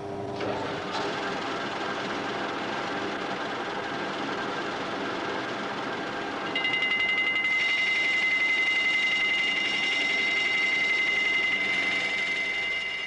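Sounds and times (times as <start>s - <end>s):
lathe cutting metal: 0.4s - 13.0s
cutting tool squealing whine: 6.4s - 13.0s.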